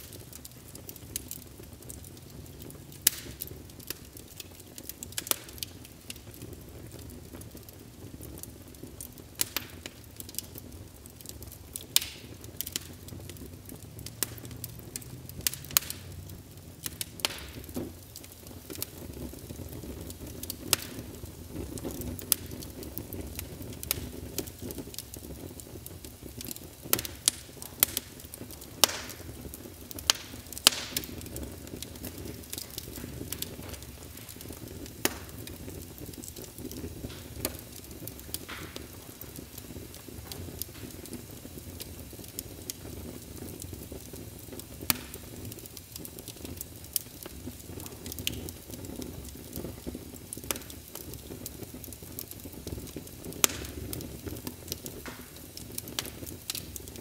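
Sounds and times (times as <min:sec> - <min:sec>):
fire crackling: 0:00.0 - 0:57.0
rumble of flames: 0:00.0 - 0:57.0.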